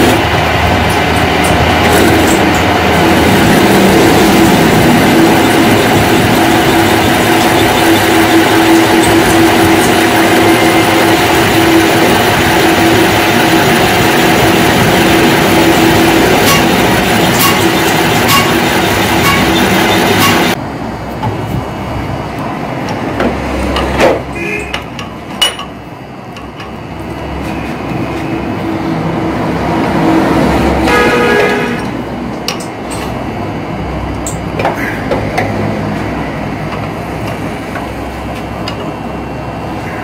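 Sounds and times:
metal lathe cutting metal: 0.7 - 20.6.

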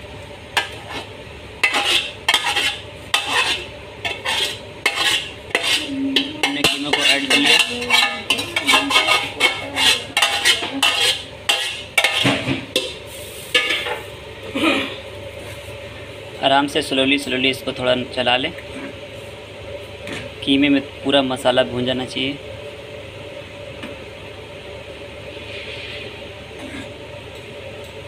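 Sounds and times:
metal spoon scraping metal pot: 0.6 - 12.9.

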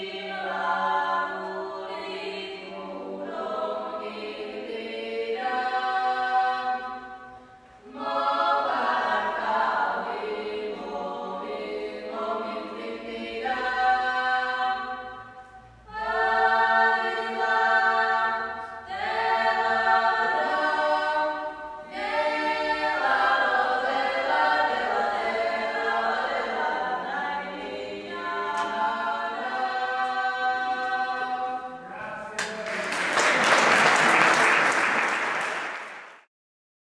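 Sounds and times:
women's choir singing a cappella: 0.0 - 31.9
audience applauding: 32.3 - 36.3.

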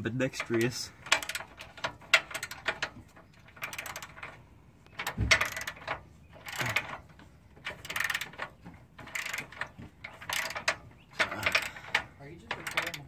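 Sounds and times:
socket ratchet clicking: 4.9 - 6.9, 9.0 - 13.0.

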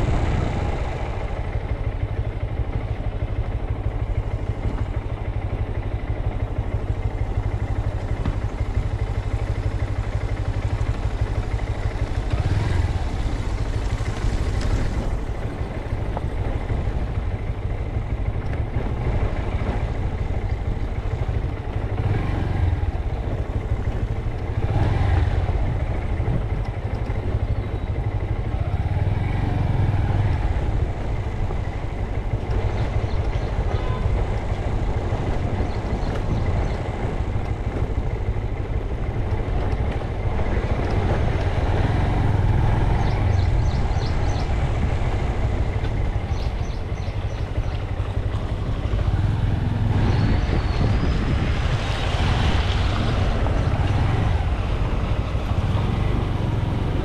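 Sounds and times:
motorcycle engine and road noise: 0.0 - 57.0.

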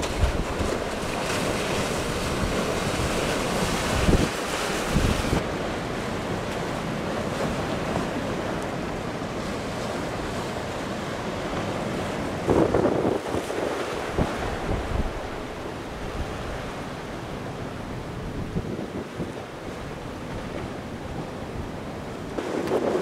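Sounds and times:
wind buffeting microphone: 0.0 - 5.4, 11.7 - 23.0
ocean surf breaking: 0.0 - 23.0.

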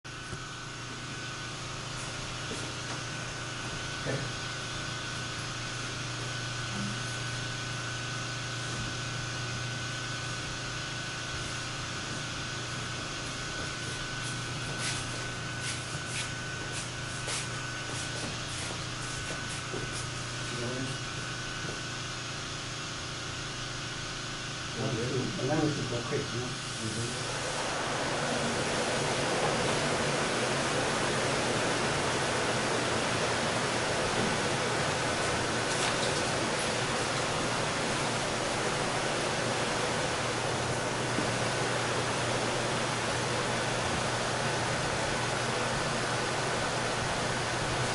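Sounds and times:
liquid nitrogen boiling hiss: 24.8 - 47.9.

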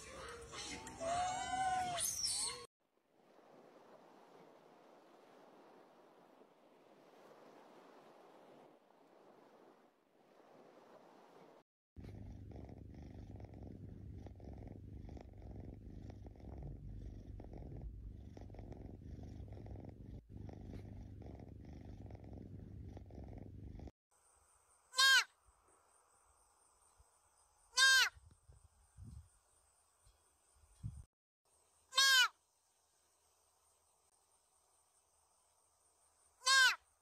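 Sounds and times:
cat purring: 8.1 - 24.0
deer fawn bleating: 25.0 - 25.3, 31.9 - 32.3, 36.4 - 36.8.

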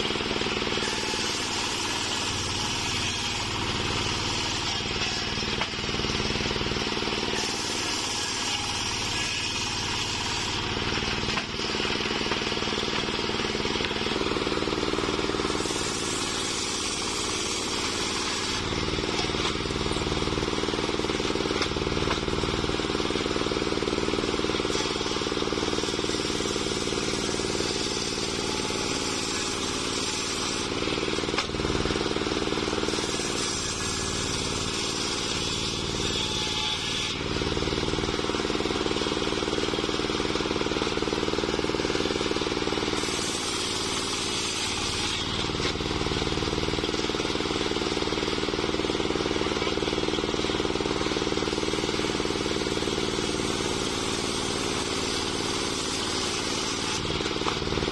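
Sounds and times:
saw blade cutting log: 0.0 - 57.9
sawmill engine running: 0.0 - 57.9.

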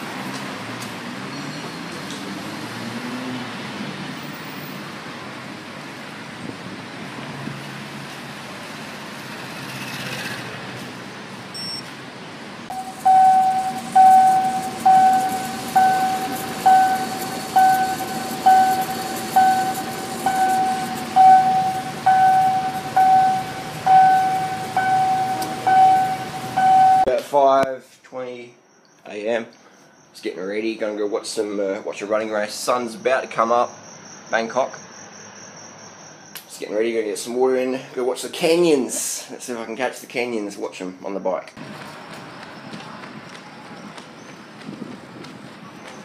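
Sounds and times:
city street traffic: 0.0 - 46.0
loud electronic beeps: 11.5 - 11.9, 12.7 - 27.1, 32.9 - 36.4.

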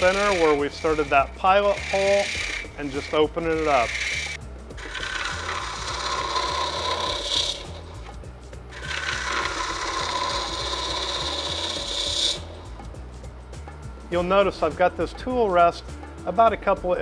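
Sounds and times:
lathe tool cutting wood: 0.0 - 13.0.

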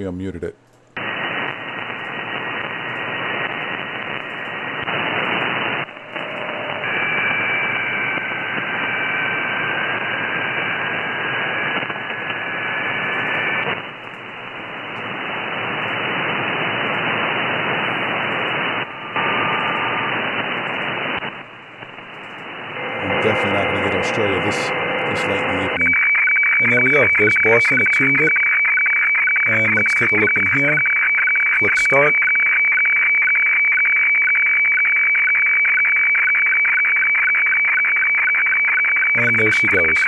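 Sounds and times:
radio static hiss: 1.0 - 32.8, 37.2 - 40.0.

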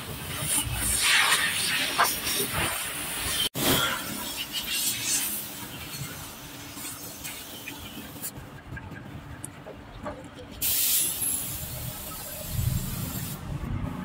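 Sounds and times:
hose water splashing on metal: 0.3 - 3.5.

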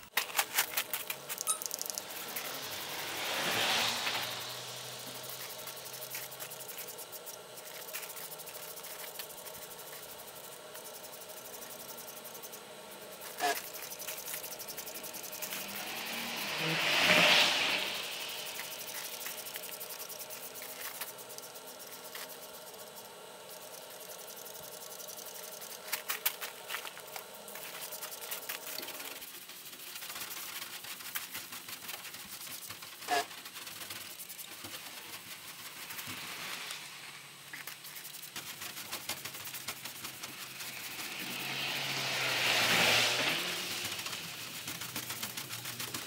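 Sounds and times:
scrubbing and scraping on paintwork: 0.0 - 46.0.

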